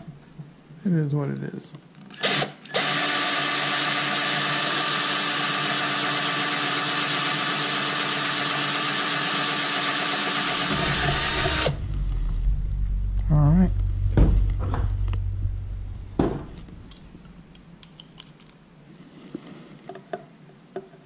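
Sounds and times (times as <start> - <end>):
cordless drill drilling: 2.2 - 11.7.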